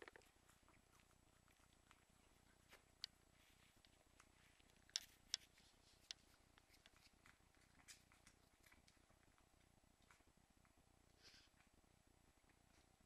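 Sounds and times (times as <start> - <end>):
puppies rustling in dog bed: 0.2 - 10.3.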